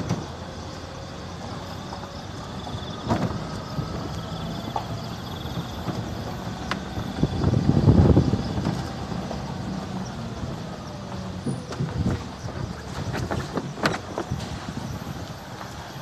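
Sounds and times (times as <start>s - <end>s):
road noise: 0.0s - 16.0s
vehicle engine running: 0.0s - 16.0s.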